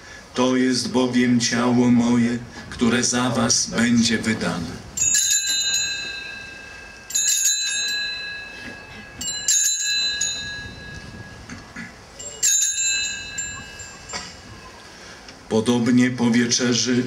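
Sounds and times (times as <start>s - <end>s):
altar bells ringing: 5.0s - 14.9s.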